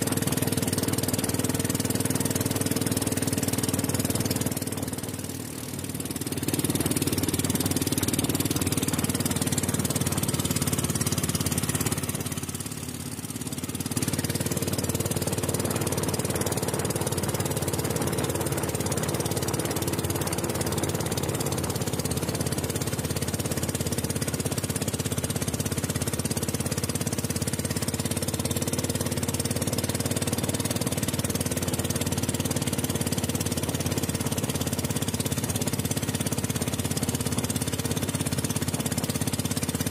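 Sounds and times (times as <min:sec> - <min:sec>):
boat engine running: 0:00.0 - 0:39.9
water rushing past hull: 0:00.0 - 0:39.9.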